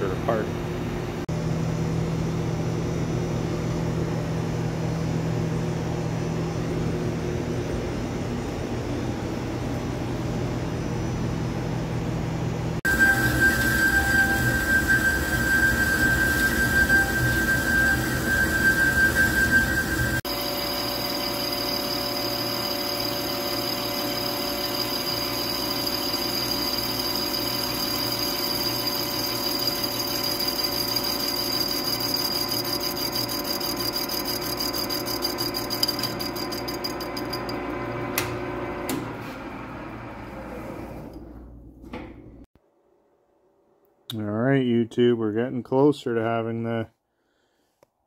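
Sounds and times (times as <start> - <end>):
metal lathe running: 12.8 - 37.8.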